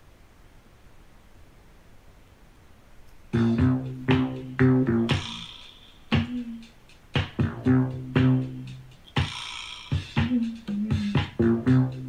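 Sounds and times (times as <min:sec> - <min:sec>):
record playing plucked music: 0:03.3 - 0:12.0.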